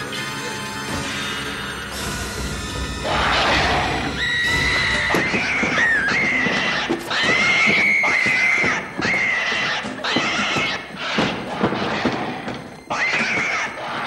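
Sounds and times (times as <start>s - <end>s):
baboon screeching: 3.0s - 14.0s.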